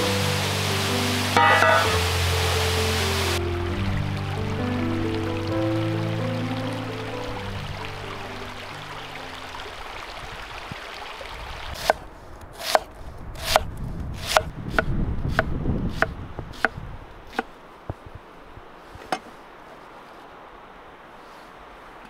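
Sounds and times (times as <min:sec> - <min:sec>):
stream running water: 0:00.0 - 0:22.0
knife chopping on wood: 0:12.6 - 0:13.6, 0:14.2 - 0:16.7.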